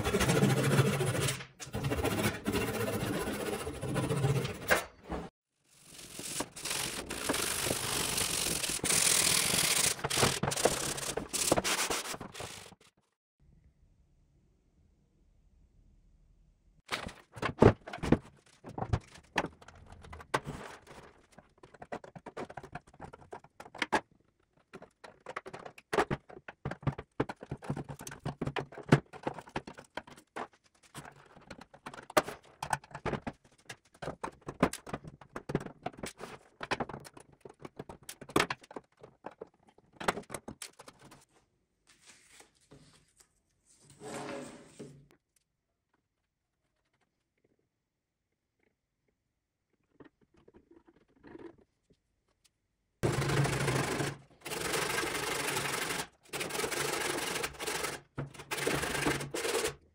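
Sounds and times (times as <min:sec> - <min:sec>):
screwdriver scraping wood: 0:05.9 - 0:12.8.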